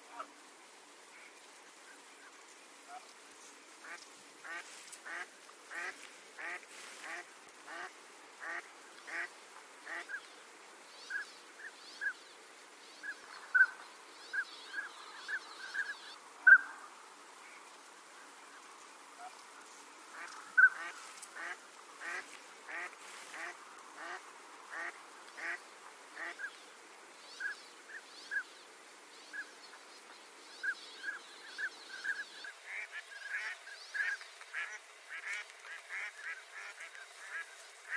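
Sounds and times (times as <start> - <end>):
ducks quacking: 3.8 - 10.2, 20.2 - 25.6, 32.7 - 37.9.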